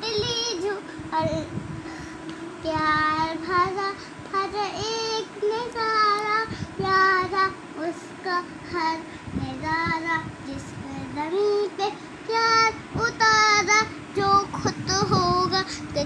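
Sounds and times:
child singing: 0:00.0 - 0:01.5, 0:02.6 - 0:16.0.

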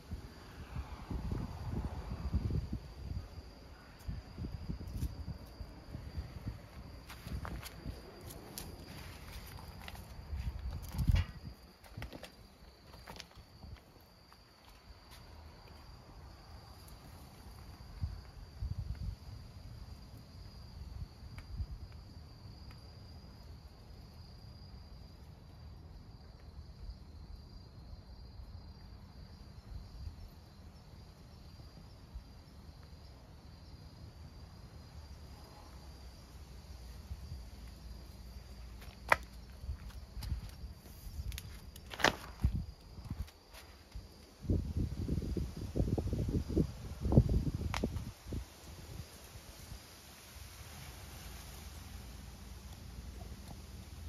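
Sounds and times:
crickets chirring: 0:00.0 - 0:54.0.

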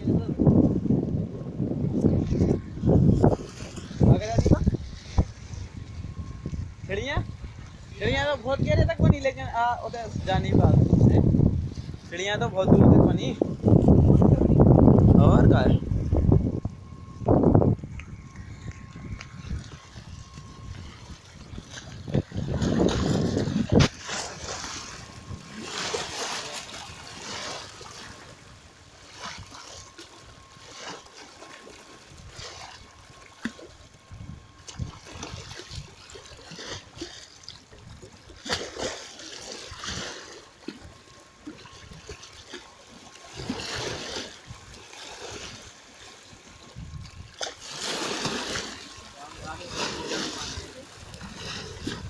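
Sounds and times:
waves splashing against stone steps: 0:20.7 - 0:33.7, 0:34.6 - 0:52.0.

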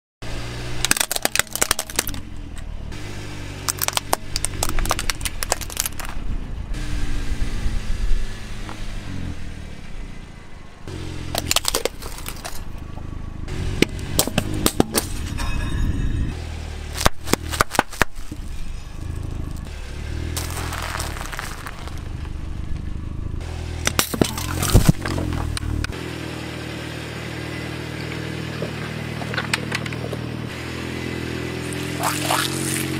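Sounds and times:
car rumbling: 0:00.2 - 0:32.9
objects cracking and crunching: 0:00.8 - 0:02.2, 0:03.7 - 0:06.2, 0:11.3 - 0:12.7, 0:17.0 - 0:19.7, 0:20.3 - 0:22.4, 0:23.9 - 0:25.6.

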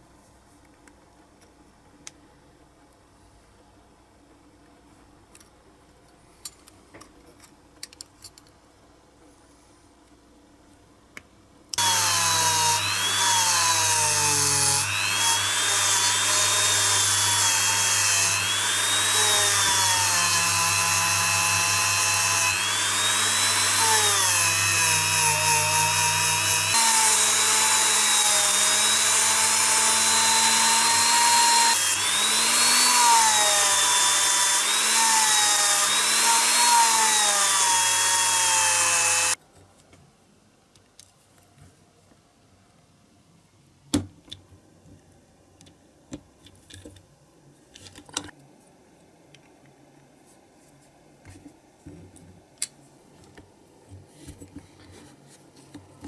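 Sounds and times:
rotary tool wire brush whine: 0:11.8 - 0:39.4.

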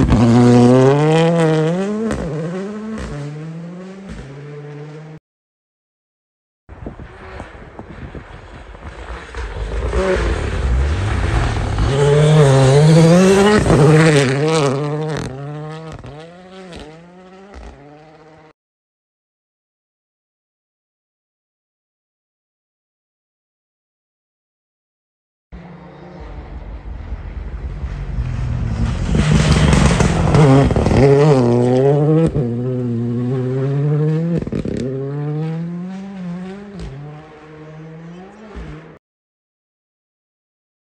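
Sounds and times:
rally car engine at high revs: 0:00.0 - 0:05.2, 0:07.0 - 0:18.5, 0:27.8 - 0:39.0
tyres rushing through snow: 0:07.1 - 0:16.0, 0:25.6 - 0:39.0.

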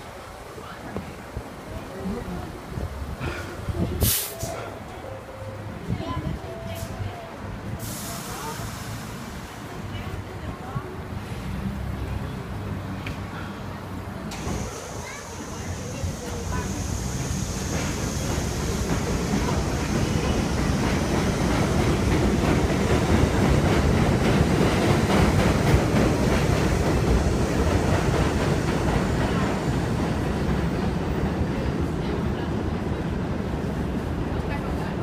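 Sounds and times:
train wheels clacking over rail joints: 0:16.1 - 0:31.2.

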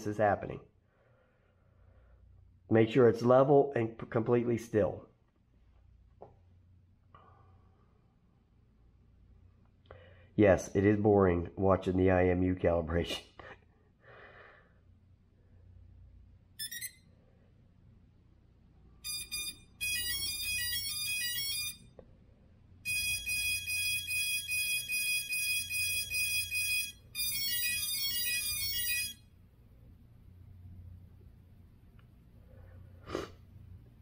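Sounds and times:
faint low hum: 0:00.0 - 0:34.0
electronic beeping melody: 0:16.6 - 0:17.0, 0:19.0 - 0:21.9, 0:22.9 - 0:29.2.

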